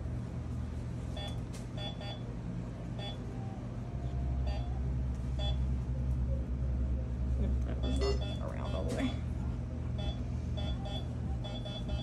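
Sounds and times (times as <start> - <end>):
steady low hum: 0.0 - 12.0
long monitor tone: 1.1 - 6.5, 7.8 - 9.2, 9.9 - 12.0
patient monitor beeps: 1.2 - 2.3, 3.0 - 3.2, 4.4 - 4.7, 5.4 - 5.7, 7.8 - 9.2, 10.0 - 12.0.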